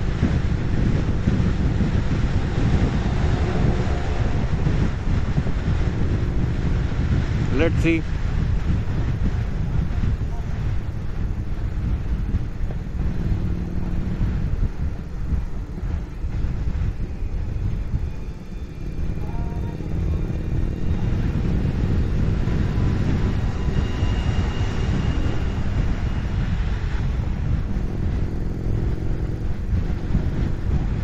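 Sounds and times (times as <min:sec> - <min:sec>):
motorcycle engine cruising: 0:00.0 - 0:31.0
wind and road noise: 0:00.0 - 0:31.0.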